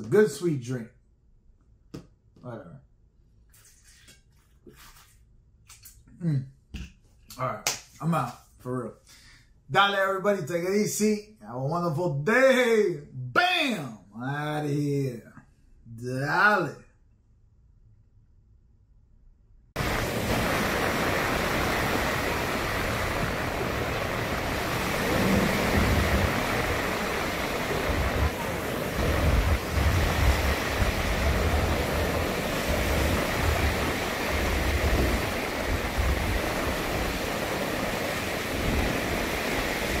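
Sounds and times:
waves washing onto beach: 19.8 - 40.0
wind buffeting microphone: 19.8 - 40.0.

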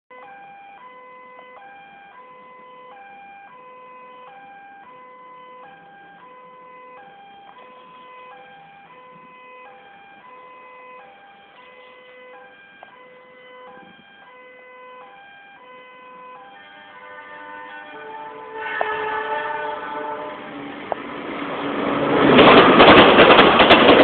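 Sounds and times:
level crossing alarm two-tone: 0.1 - 17.1.

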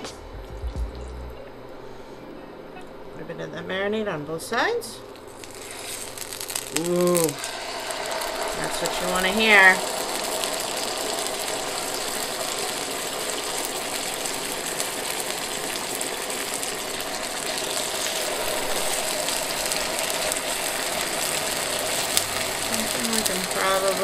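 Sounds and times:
chicken sizzling in frying pan: 5.3 - 24.0.

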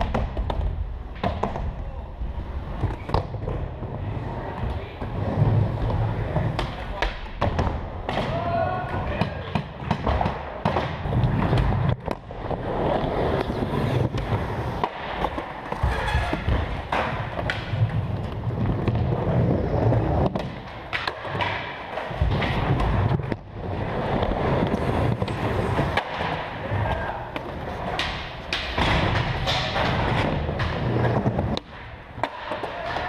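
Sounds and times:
skateboard wheels rolling: 0.0 - 9.1, 9.7 - 33.0
skateboard clacks: 20.0 - 33.0.

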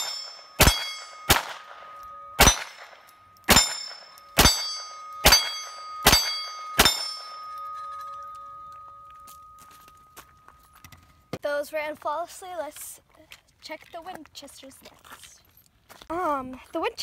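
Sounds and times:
pistol shots: 0.0 - 7.4
steel plate target ringing: 0.0 - 11.3.

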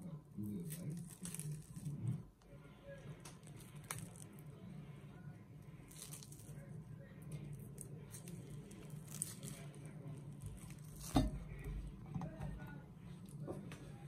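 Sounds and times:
steady low hum: 0.0 - 14.0
fruit peel tearing and squishing: 0.4 - 2.2, 3.2 - 4.4, 5.8 - 6.7, 7.4 - 11.7.

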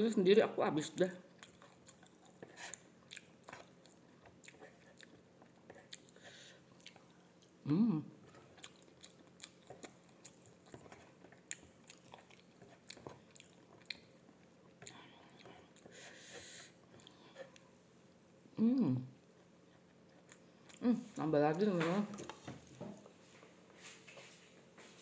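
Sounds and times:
person chewing food: 1.3 - 7.6, 8.2 - 18.4, 19.2 - 20.8
person humming: 7.6 - 8.1, 18.6 - 19.2.

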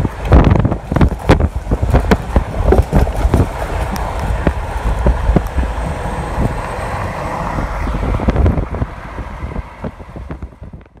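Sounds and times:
car road noise: 0.0 - 11.0
wind buffeting through window: 0.0 - 11.0.

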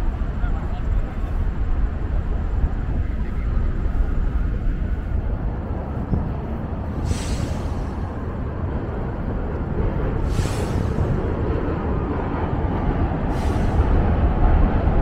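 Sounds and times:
subway train rumbling overhead: 0.0 - 15.0
short hiss: 7.0 - 7.9, 10.2 - 11.0.

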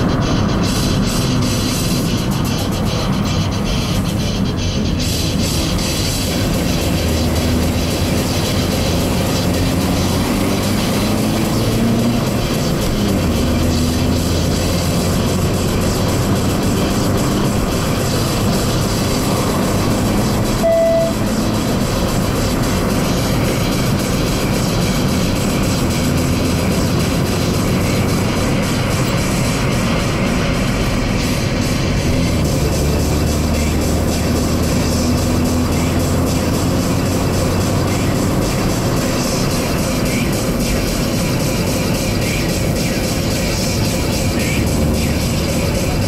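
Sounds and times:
car engine and road noise: 0.0 - 46.0
short single tone: 20.6 - 21.3.

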